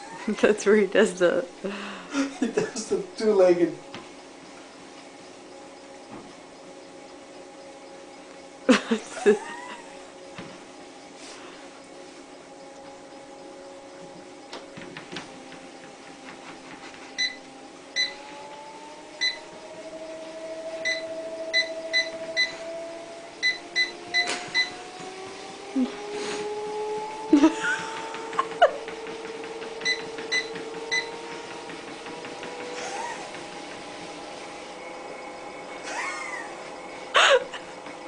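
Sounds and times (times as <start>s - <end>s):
treadmill motor whine: 0.0s - 38.0s.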